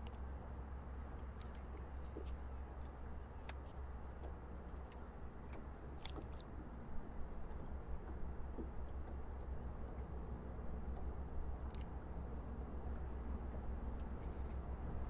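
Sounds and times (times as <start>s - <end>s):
steady low rumble: 0.0s - 15.0s
fishing reel grinding and clicking: 14.1s - 14.6s.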